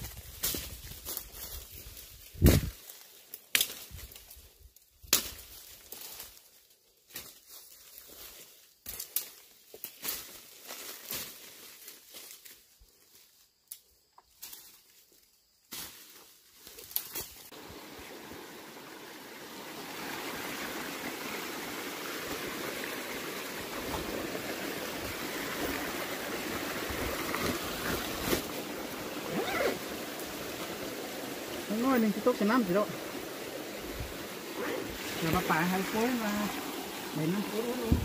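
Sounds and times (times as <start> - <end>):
rustling in undergrowth: 0.0 - 18.8, 19.8 - 38.0
stream running over rocks: 16.9 - 38.0.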